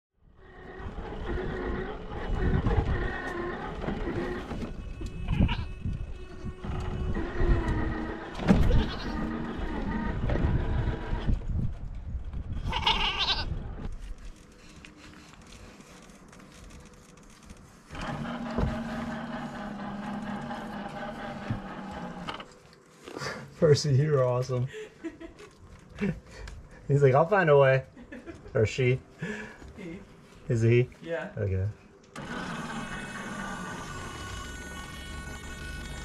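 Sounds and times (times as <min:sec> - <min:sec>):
goats bleating: 0:08.7 - 0:09.5, 0:12.6 - 0:13.5.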